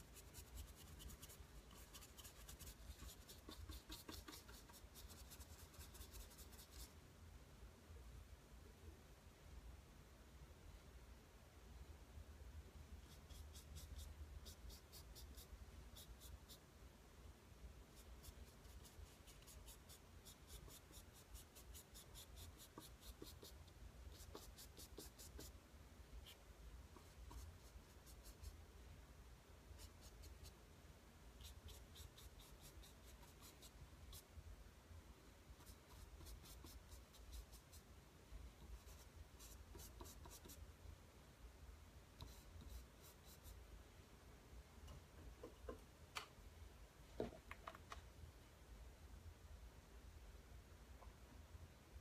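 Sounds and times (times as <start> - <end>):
paintbrush scratching on canvas: 0.0 - 6.9, 13.0 - 16.6, 17.9 - 25.6, 26.2 - 28.6, 29.8 - 30.6, 31.4 - 34.3, 35.6 - 37.9, 38.6 - 40.6, 42.2 - 43.6.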